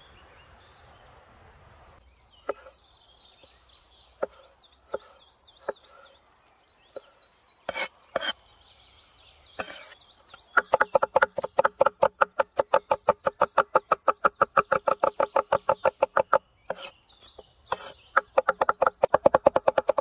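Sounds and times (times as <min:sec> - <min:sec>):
knife scraping cutting board: 0:02.5 - 0:02.8, 0:07.7 - 0:08.4, 0:09.6 - 0:10.0, 0:16.7 - 0:16.9, 0:17.7 - 0:18.0
cleaver chopping on wooden board: 0:10.5 - 0:16.9, 0:17.7 - 0:20.0.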